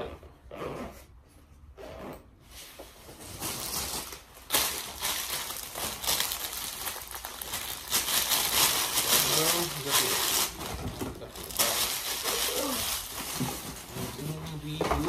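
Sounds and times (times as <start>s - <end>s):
plastic bag crinkling: 3.2s - 15.0s.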